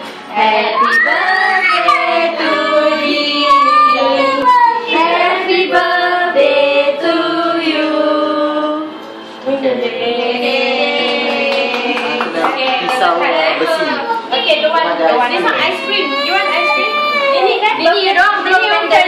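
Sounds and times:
group singing a birthday song: 0.0s - 15.4s
child singing: 0.4s - 7.9s.

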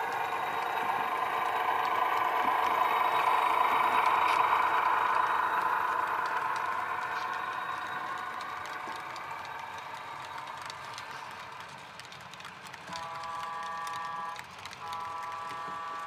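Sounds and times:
clicks at rail joints: 0.0s - 16.0s
model train rolling on track: 0.0s - 16.0s
train horn signal blast: 12.9s - 16.0s.

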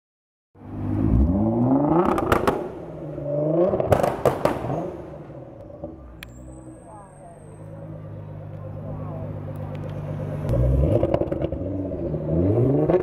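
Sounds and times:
car engine revving: 0.6s - 13.0s
exhaust pops and bangs: 2.0s - 2.7s, 3.7s - 5.0s.

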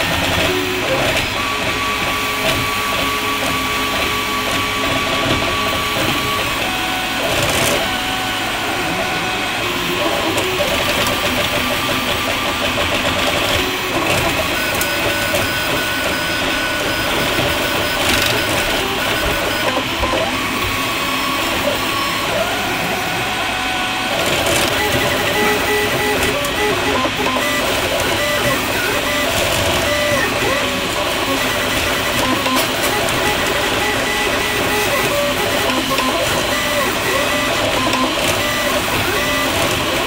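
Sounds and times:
three-d printer motors whirring: 0.0s - 40.0s.

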